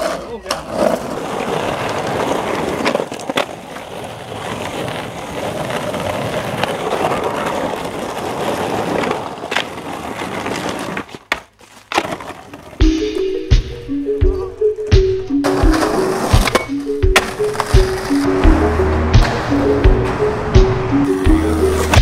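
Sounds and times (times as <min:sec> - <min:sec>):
skateboard clicks: 0:00.0 - 0:12.8
skateboard cracking on ground: 0:00.0 - 0:13.0, 0:15.4 - 0:18.3
skateboard wheels rolling on pavement: 0:00.0 - 0:22.0.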